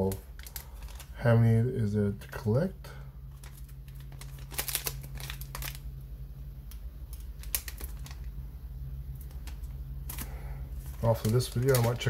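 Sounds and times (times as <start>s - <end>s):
plastic wrapper crinkling: 0.0s - 1.2s, 3.2s - 6.0s, 6.6s - 8.4s, 9.0s - 12.0s
steady low hum: 0.0s - 12.0s.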